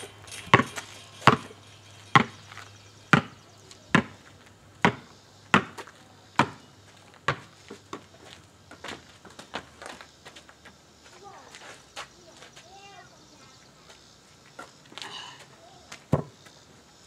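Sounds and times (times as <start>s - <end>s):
basketball bouncing on asphalt: 0.0s - 10.0s, 15.9s - 16.6s.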